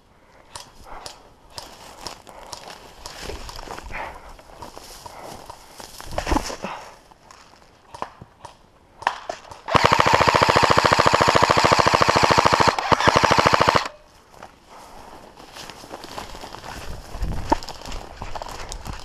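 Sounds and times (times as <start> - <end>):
airsoft rifle full auto burst: 9.7 - 14.0.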